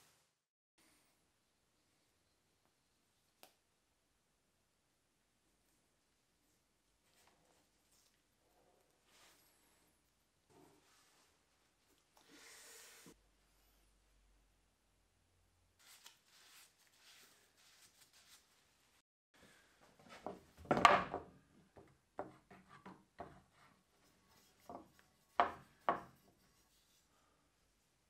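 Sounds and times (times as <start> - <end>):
knocks on a workbench: 20.6 - 21.3.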